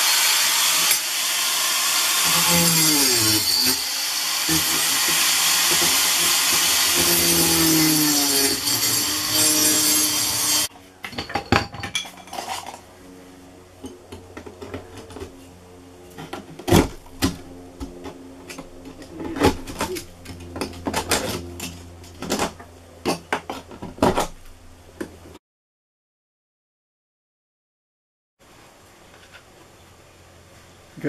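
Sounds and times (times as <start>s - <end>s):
loud power tool running: 0.0s - 10.7s.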